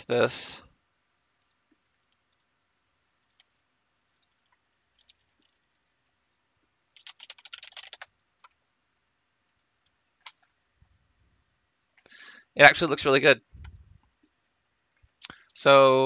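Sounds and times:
computer mouse clicks: 1.4 - 2.5, 3.2 - 6.1, 9.5 - 10.5, 13.6 - 15.6
keyboard typing: 1.4 - 2.6, 3.2 - 6.1, 6.9 - 8.7, 9.4 - 10.5, 13.6 - 15.2.

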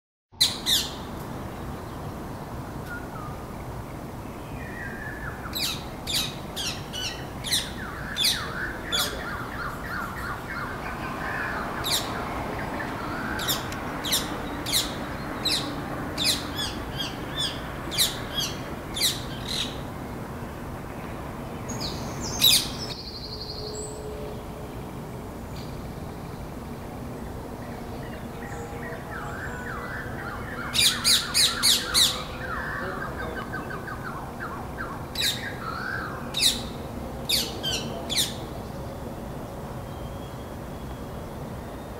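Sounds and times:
parakeets squawking: 0.4 - 1.0, 5.5 - 19.8, 30.6 - 34.2, 34.9 - 38.4
low background noise: 0.4 - 41.9.

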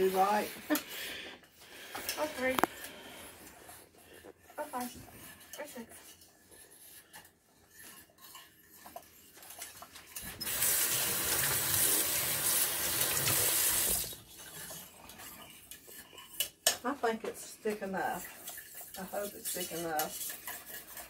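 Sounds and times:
spoon scraping a saucepan: 4.4 - 10.4, 14.2 - 21.0
kitchen tap running: 10.1 - 14.9.

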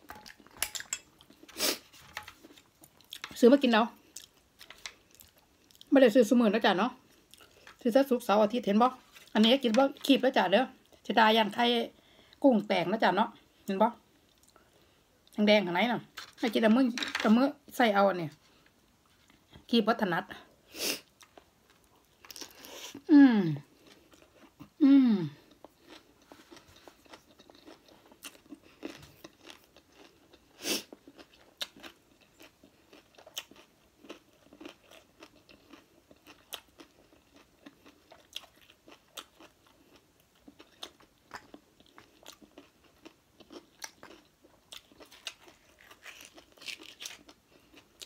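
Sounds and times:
person humming: 23.1 - 23.6, 24.8 - 25.4.

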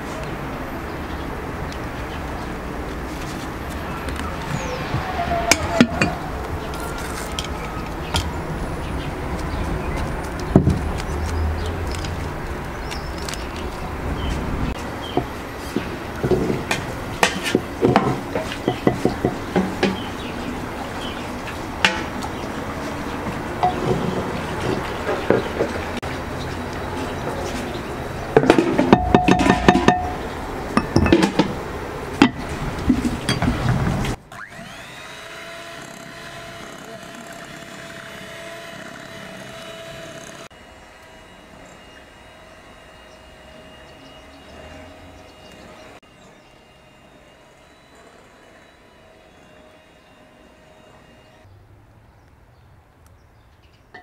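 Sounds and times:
hand mixer motor whine: 34.3 - 51.5.

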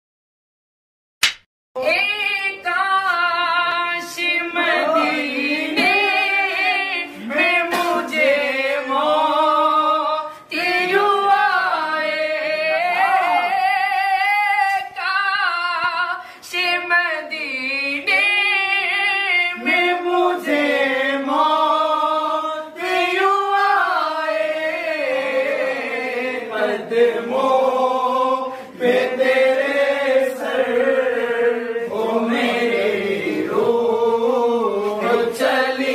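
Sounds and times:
person singing devotional song: 1.8 - 35.9.

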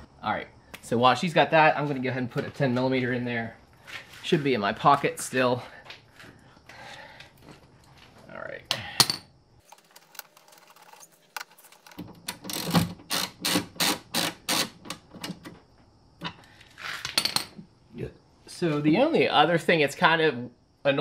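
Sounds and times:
ratchet wrench clicking: 11.8 - 15.0.

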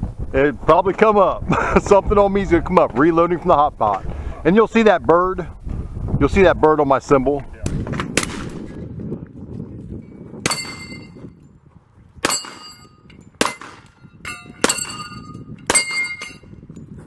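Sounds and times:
metallic clang of steel target: 10.4 - 11.2, 12.2 - 16.5.

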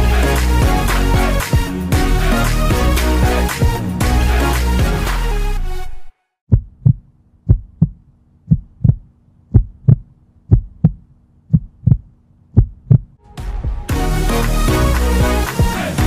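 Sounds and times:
music: 0.0 - 6.4, 13.2 - 16.0
heartbeat thumps: 6.5 - 13.9.

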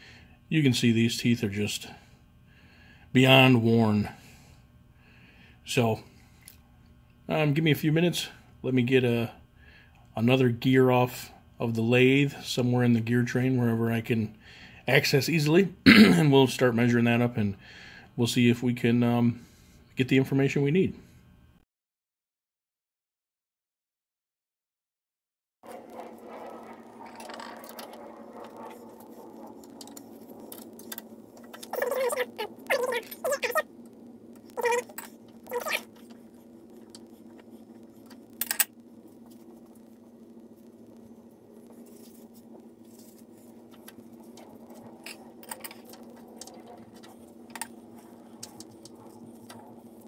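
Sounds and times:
faint steady hum: 0.0 - 21.6, 25.7 - 50.0
small metallic clicks and scrapes: 25.7 - 33.6, 34.3 - 40.0, 40.9 - 50.0
metallic clinks and scraping: 38.4 - 38.7.

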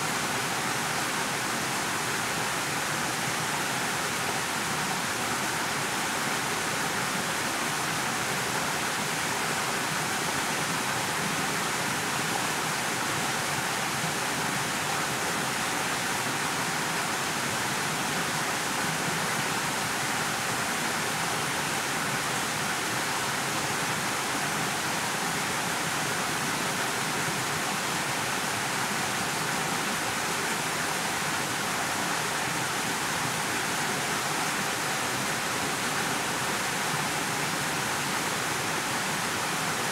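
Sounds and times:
steady background hiss: 0.0 - 39.9.

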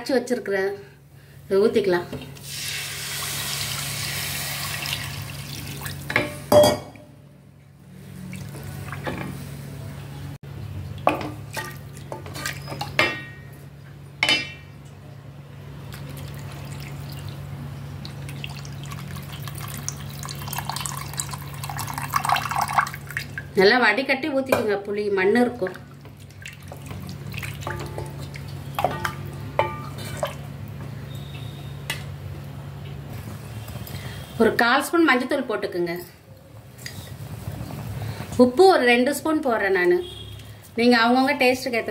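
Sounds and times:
liquid pouring into a pot: 2.4 - 6.1, 18.1 - 23.4.

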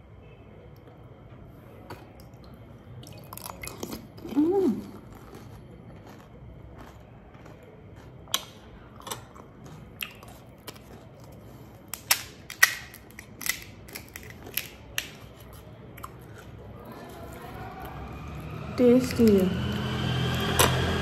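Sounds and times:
crisp shells cracking: 8.4 - 16.5.

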